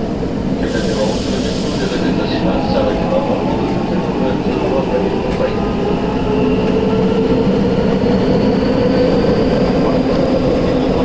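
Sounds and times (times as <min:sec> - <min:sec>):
train wheels rumbling in tunnel: 0:00.0 - 0:11.0.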